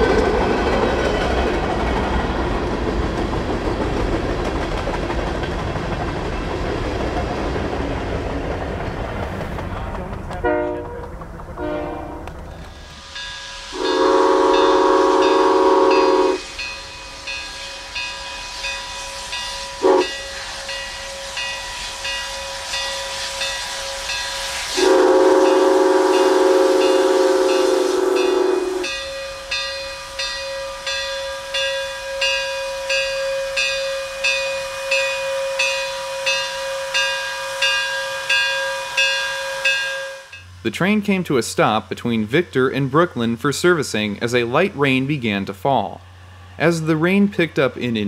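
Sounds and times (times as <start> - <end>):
steam locomotive exhaust chuffing: 0.0 - 48.0
steam whistle blasts: 11.6 - 12.2, 13.0 - 40.4.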